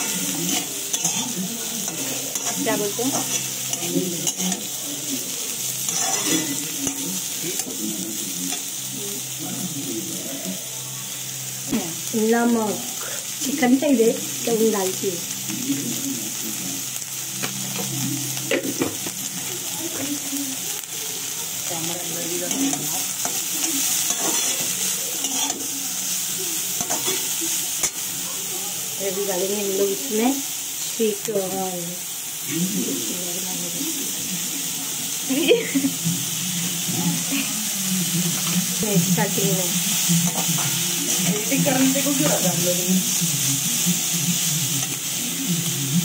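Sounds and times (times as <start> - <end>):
spatula scraping a pan: 0.0 - 7.1, 22.0 - 26.0, 26.6 - 28.1
hot oil sizzling in a wok: 0.0 - 46.0.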